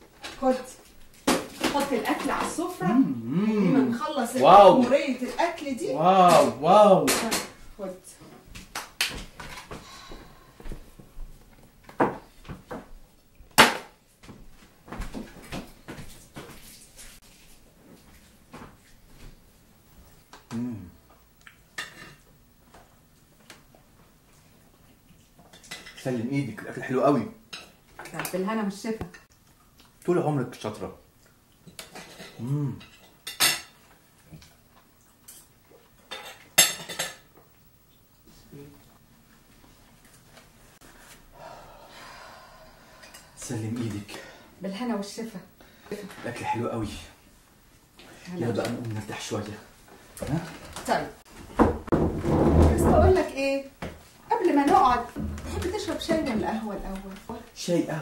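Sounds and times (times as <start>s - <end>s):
cutlery clinking on plates: 36.1s - 37.3s
dishes clinking and knocking: 36.1s - 37.3s, 54.7s - 56.6s.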